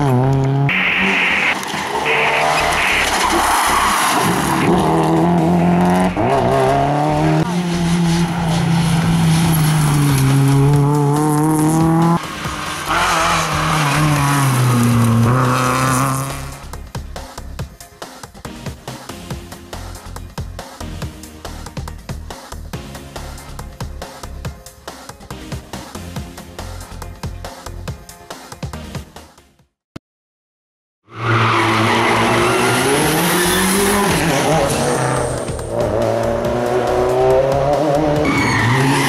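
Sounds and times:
rally car engine revving: 0.0s - 16.7s, 31.2s - 39.0s.

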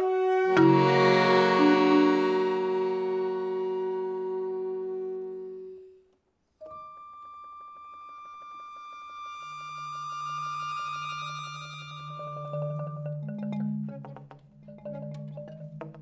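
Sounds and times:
chamber music ensemble: 0.0s - 5.8s, 6.6s - 16.0s
fast mallet tremolo: 0.6s - 3.9s, 10.2s - 16.0s.

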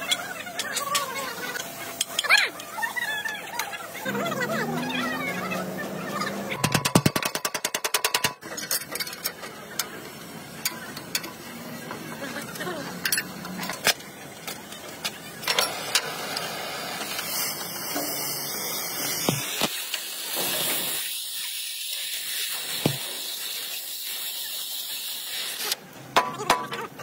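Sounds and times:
steady hiss: 14.0s - 25.9s.

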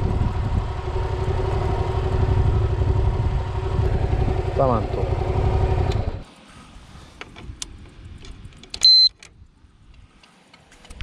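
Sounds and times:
motorcycle engine running: 0.0s - 6.3s
faint clicks and handling noise: 7.2s - 11.0s.

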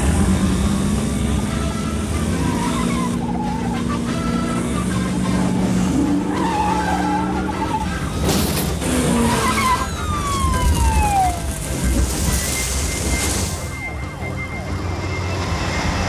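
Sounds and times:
siren: 0.0s - 16.0s
cars skidding with squealing tyres: 1.9s - 14.4s.

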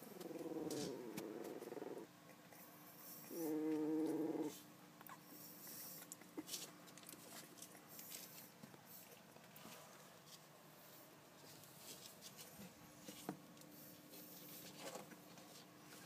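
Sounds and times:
puppy growling: 0.0s - 6.5s
faint rustling: 0.0s - 16.0s.

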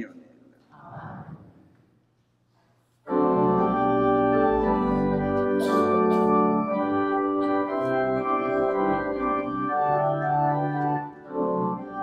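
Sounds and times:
organ chords: 3.1s - 12.0s.

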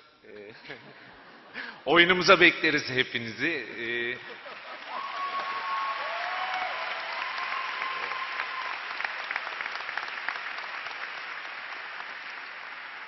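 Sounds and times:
audience applauding: 4.3s - 13.0s.

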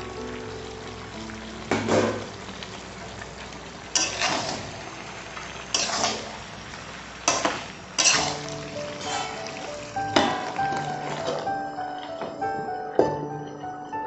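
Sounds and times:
frying hiss: 0.0s - 13.4s
spatula scraping a pan: 4.0s - 4.8s, 5.7s - 6.3s, 7.3s - 9.6s.

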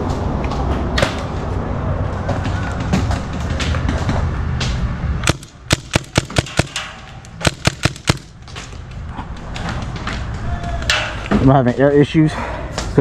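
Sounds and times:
paintball marker shots: 5.2s - 8.3s.

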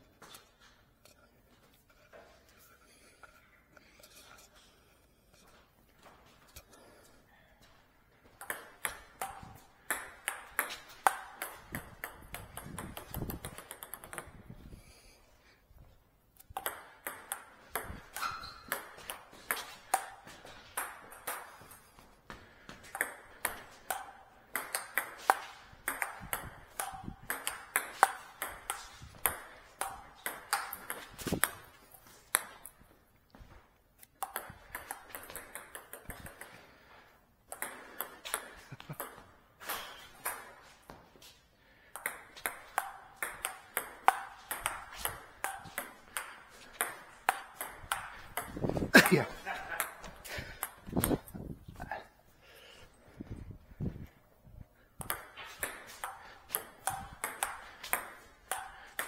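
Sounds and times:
table tennis ball clicking: 8.4s - 14.5s, 16.4s - 21.6s, 22.9s - 32.8s, 34.0s - 36.5s, 42.0s - 48.7s, 55.0s - 59.0s.

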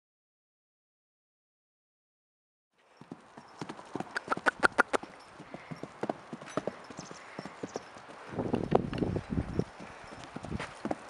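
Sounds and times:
horse hoofbeats on sand: 2.9s - 11.0s.

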